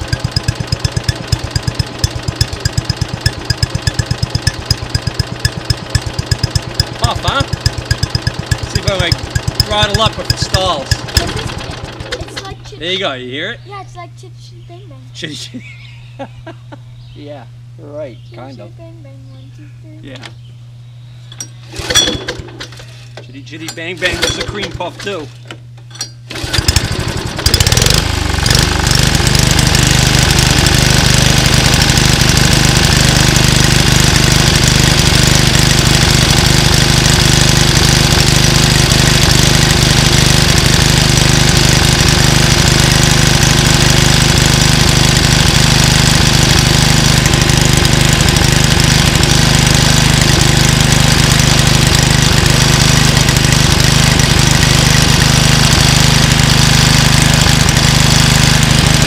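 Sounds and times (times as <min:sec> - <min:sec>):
lawn mower engine running: 0:00.0 - 0:13.3, 0:21.3 - 0:59.0.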